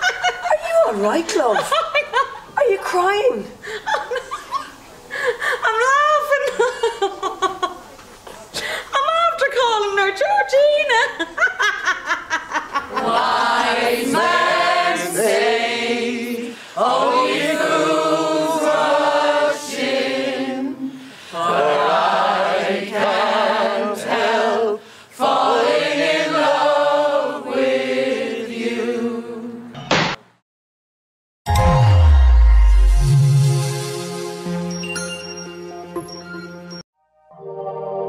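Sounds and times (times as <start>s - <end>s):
people singing a song: 12.9s - 29.8s.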